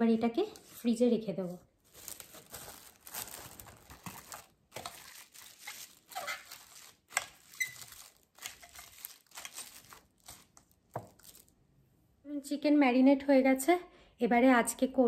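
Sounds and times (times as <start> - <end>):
cling film crinkling: 1.8 - 11.5.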